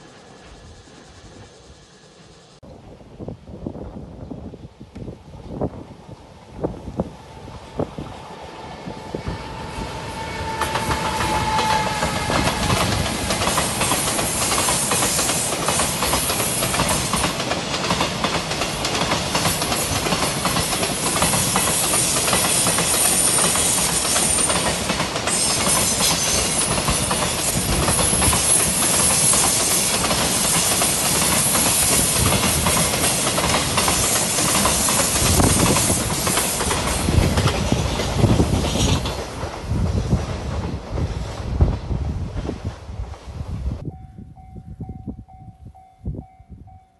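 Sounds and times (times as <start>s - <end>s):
electric locomotive passing: 0.0s - 46.8s
train wagons rolling past: 7.0s - 43.4s.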